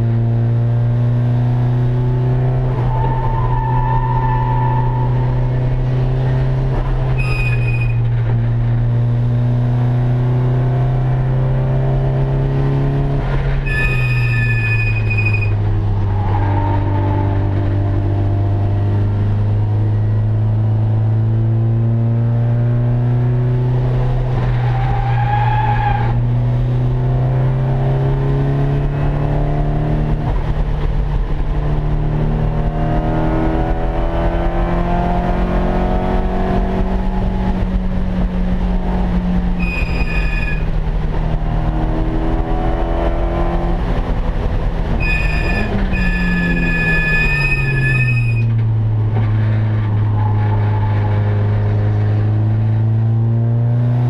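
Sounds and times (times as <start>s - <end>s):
race car engine under load: 0.0s - 54.0s
brief high squeal: 7.1s - 8.0s, 13.6s - 15.6s, 39.6s - 40.7s, 45.0s - 48.6s.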